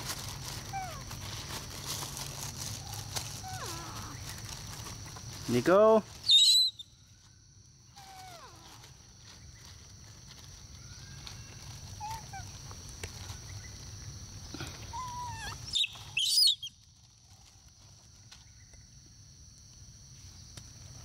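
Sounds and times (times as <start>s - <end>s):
insect drone: 0.0s - 21.0s
monkeys shrieking: 2.9s - 4.3s, 11.0s - 12.5s, 14.8s - 16.7s.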